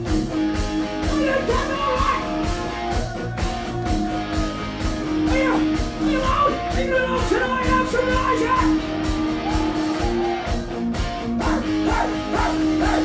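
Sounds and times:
drum kit beat: 0:00.0 - 0:13.0
electric guitars: 0:00.0 - 0:13.0.

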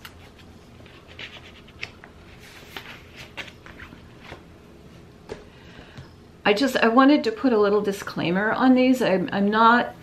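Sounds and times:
paper rustling: 0:00.0 - 0:04.4.

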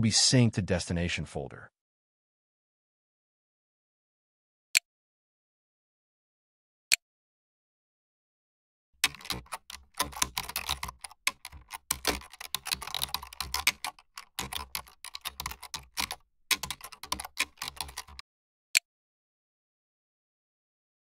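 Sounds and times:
keyboard typing: 0:09.0 - 0:18.2.

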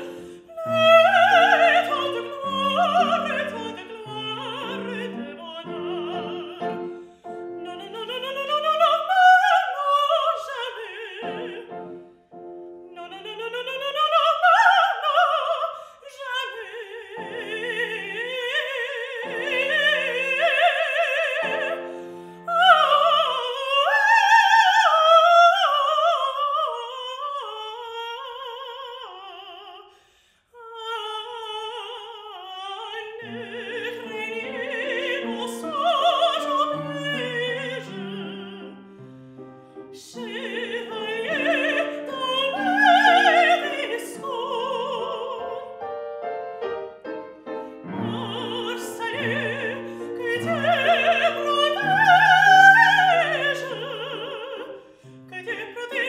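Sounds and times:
woman singing opera: 0:00.0 - 0:12.1, 0:12.8 - 0:45.9, 0:46.6 - 0:56.0
piano accompaniment: 0:00.0 - 0:15.7, 0:32.8 - 0:56.0.

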